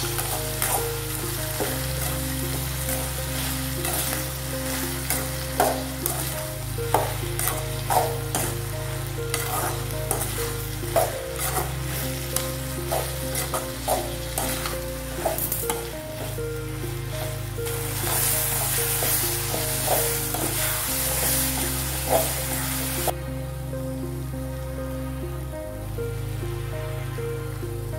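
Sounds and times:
metal ladle scraping pan: 0:00.0 - 0:16.3
vegetables sizzling in pan: 0:00.0 - 0:23.2.

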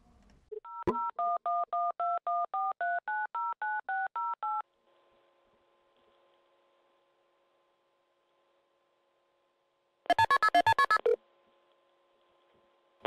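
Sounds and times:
faint steady telephone tone: 0:00.5 - 0:04.6
telephone keypad beeps: 0:00.6 - 0:04.6, 0:10.1 - 0:11.2.

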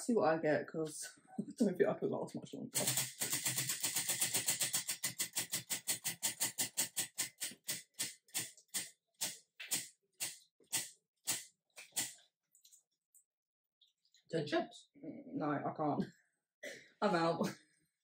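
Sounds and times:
prize wheel clicking: 0:02.8 - 0:11.4.

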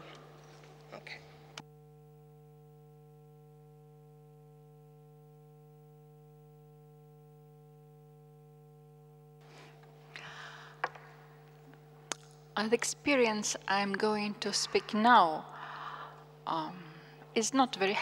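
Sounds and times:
faint hum of held tones: 0:00.0 - 0:18.0.

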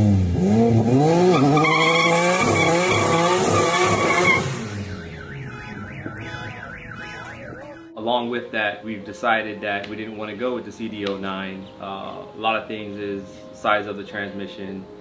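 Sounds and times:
car engine revving: 0:00.0 - 0:07.7
tyre squeal: 0:01.3 - 0:04.6
fast warbling tone: 0:02.6 - 0:07.9.

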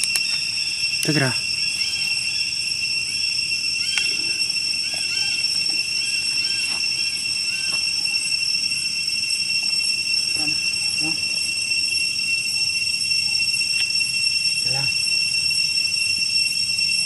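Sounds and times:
high-pitched insect drone: 0:00.0 - 0:17.0.

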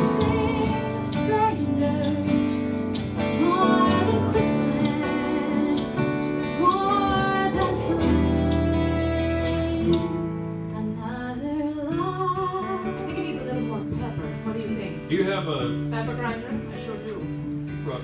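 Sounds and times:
strummed guitar: 0:00.0 - 0:10.8
woman singing into a microphone: 0:00.0 - 0:14.9.

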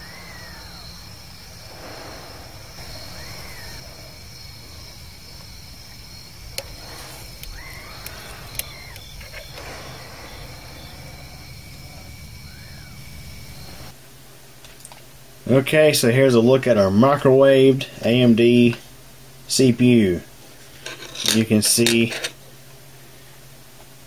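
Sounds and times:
drawn-out rising and falling calls: 0:00.0 - 0:14.0
insects chirring: 0:00.0 - 0:14.0, 0:20.7 - 0:22.4
sharp clicks: 0:06.5 - 0:10.2.

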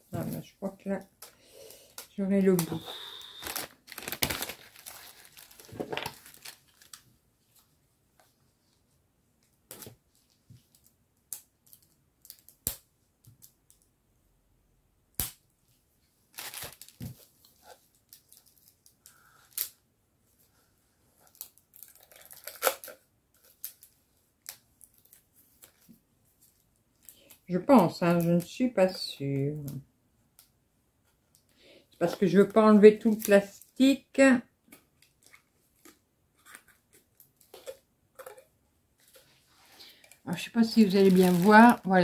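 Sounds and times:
plastic wrapping rustling: 0:02.1 - 0:07.7, 0:16.3 - 0:19.7, 0:21.2 - 0:27.3, 0:39.0 - 0:42.0.

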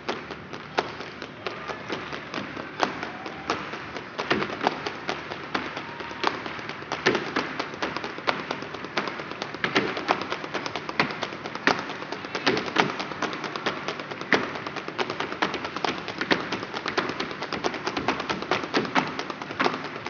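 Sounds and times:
group clapping rhythmically: 0:00.0 - 0:20.0.

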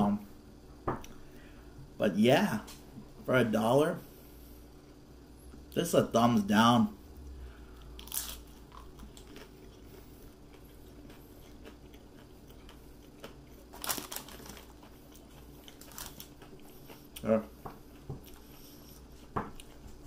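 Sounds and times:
crunching hard taco shell: 0:08.0 - 0:09.9, 0:10.5 - 0:16.7.

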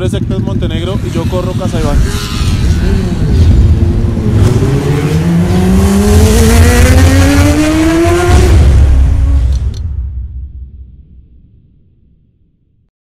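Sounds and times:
vehicle engine accelerating: 0:00.5 - 0:09.5.

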